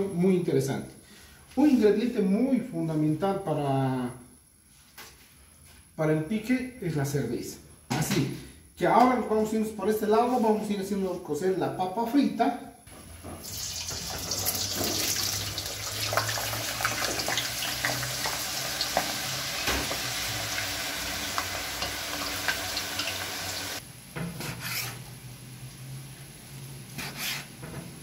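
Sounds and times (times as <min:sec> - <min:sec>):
potatoes frying in hot oil: 0:12.9 - 0:28.0
knife cutting on cutting board: 0:24.4 - 0:25.0, 0:27.0 - 0:27.5.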